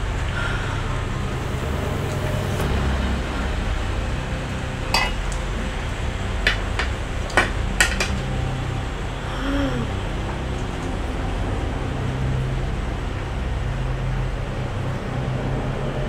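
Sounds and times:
steady low rumble: 0.0 - 16.0
spoons clinking on plates: 5.0 - 5.2.

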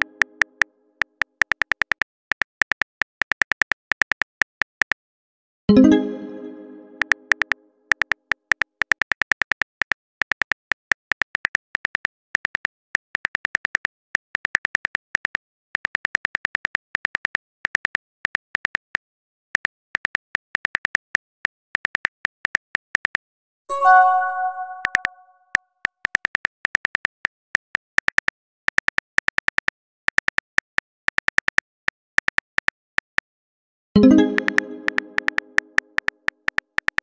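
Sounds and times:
message chime: 5.7 - 7.3, 23.7 - 25.3, 34.0 - 35.8.

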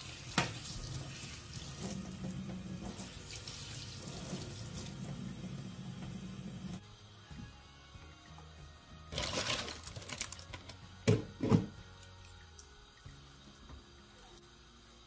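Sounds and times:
water running from tap into sink: 0.0 - 6.8.

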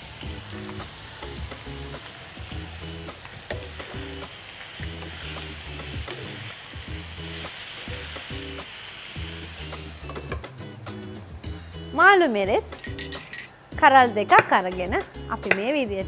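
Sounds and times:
food sizzling in a frying pan: 0.0 - 10.4
soft background music: 0.0 - 16.0.

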